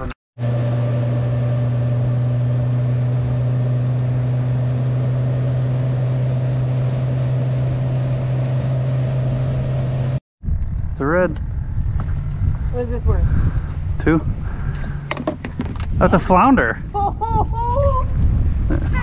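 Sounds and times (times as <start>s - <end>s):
wind: 0.0s - 19.0s
outboard motor droning: 0.4s - 10.2s.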